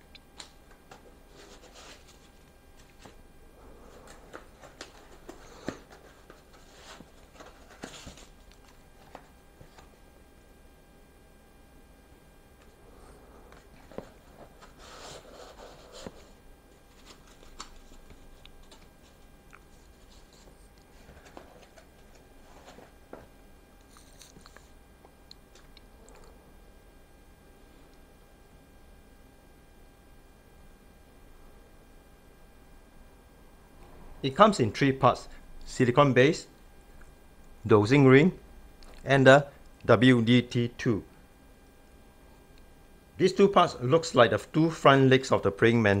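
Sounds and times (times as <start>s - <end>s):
cardboard and foam rustling: 1.3s - 2.4s, 3.9s - 9.8s.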